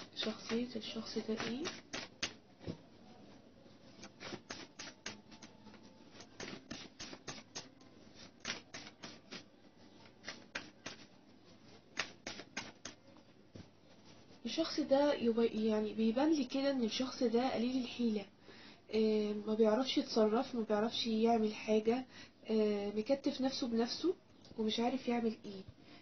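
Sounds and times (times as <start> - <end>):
cards being shuffled: 0.2 - 2.4, 4.0 - 11.1, 11.9 - 13.0.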